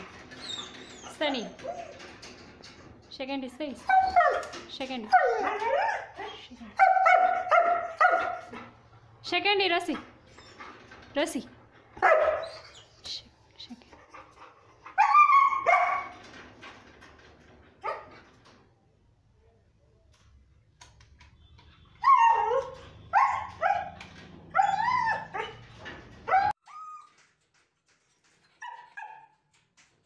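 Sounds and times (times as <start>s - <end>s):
dog barking and whining: 3.8s - 8.8s, 12.0s - 13.0s, 14.8s - 16.2s, 22.0s - 27.1s.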